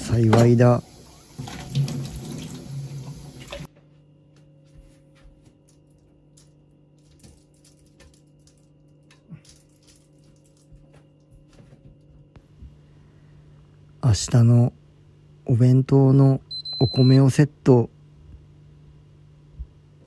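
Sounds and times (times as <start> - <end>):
tap water running into sink: 0.0 - 3.7
steady low hum: 0.0 - 20.0.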